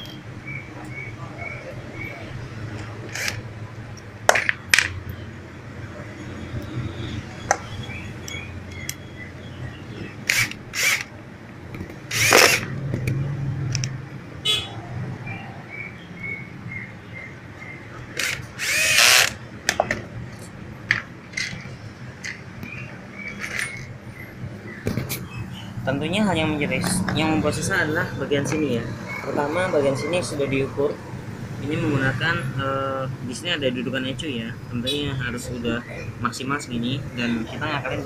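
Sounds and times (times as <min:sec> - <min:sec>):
cordless drill whining: 0:03.1 - 0:03.4, 0:10.3 - 0:11.1, 0:12.1 - 0:12.7, 0:18.2 - 0:19.4
clicks of screws and parts: 0:11.7 - 0:14.0, 0:20.9 - 0:23.9.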